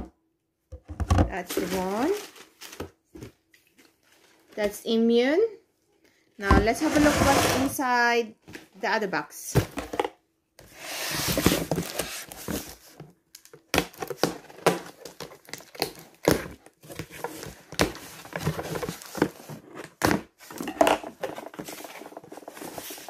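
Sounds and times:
cardboard and plastic ripping: 0:10.8 - 0:23.0.

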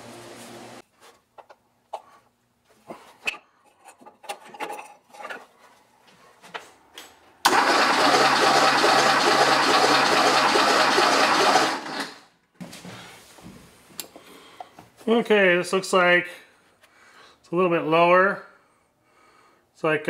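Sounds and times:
engine cranking on starter motor: 0:07.4 - 0:12.3.

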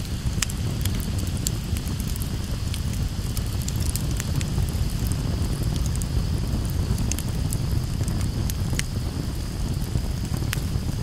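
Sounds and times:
campfire crackling and popping: 0:00.0 - 0:11.0.

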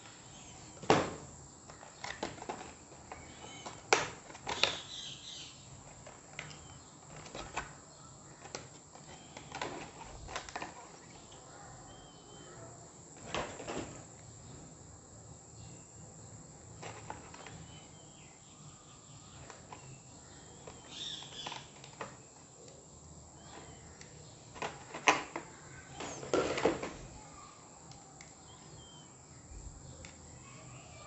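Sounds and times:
faint chirping: 0:00.0 - 0:03.9, 0:04.5 - 0:13.3, 0:13.9 - 0:31.0
plastic clicks and crinkles: 0:01.6 - 0:05.1, 0:05.7 - 0:11.6, 0:16.8 - 0:17.9, 0:19.2 - 0:22.8, 0:23.4 - 0:27.1.

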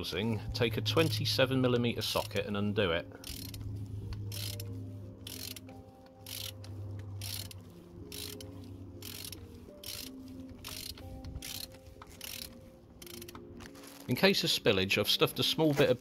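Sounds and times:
background music with chords: 0:00.0 - 0:16.0
ratchet wrench clicking: 0:02.0 - 0:02.4, 0:03.2 - 0:13.5.

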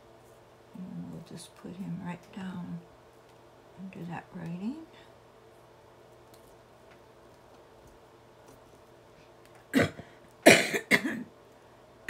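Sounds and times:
woman coughing: 0:09.7 - 0:11.3.

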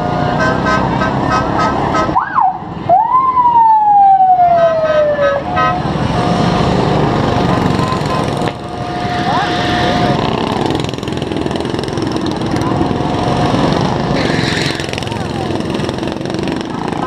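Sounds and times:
go-kart engines: 0:00.0 - 0:17.0
siren wailing: 0:02.2 - 0:05.8, 0:08.7 - 0:10.5.

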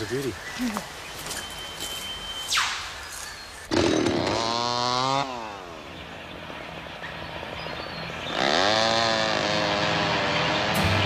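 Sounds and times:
chainsaw engine revving: 0:03.7 - 0:06.1, 0:08.3 - 0:11.0.

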